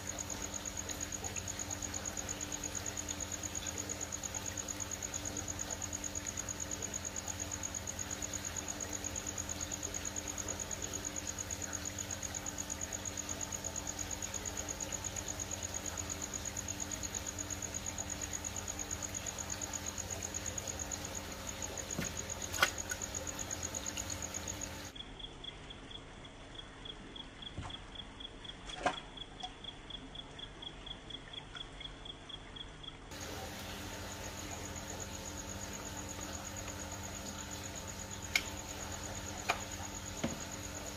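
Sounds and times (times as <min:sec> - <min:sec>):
low pump hum: 0:00.0 - 0:31.4, 0:33.1 - 0:40.9
water splashing: 0:21.7 - 0:24.6.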